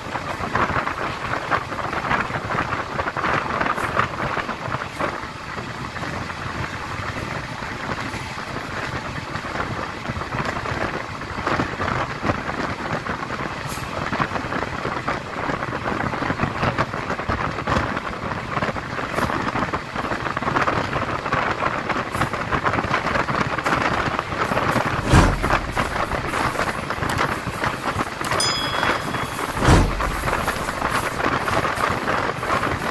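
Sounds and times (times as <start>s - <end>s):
train wheel and rail noise: 0.0s - 32.9s
wind over microphone: 23.7s - 31.6s.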